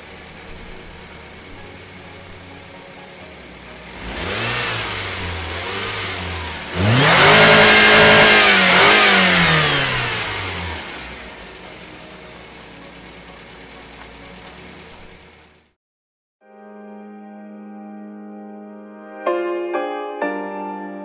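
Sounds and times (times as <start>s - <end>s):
car engine revving: 0.0s - 15.7s.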